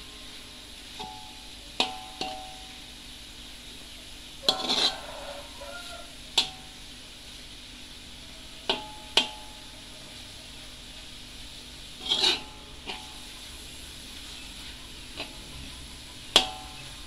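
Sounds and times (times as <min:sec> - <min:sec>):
spatula scraping metal wok: 0:04.4 - 0:06.9, 0:11.7 - 0:17.0.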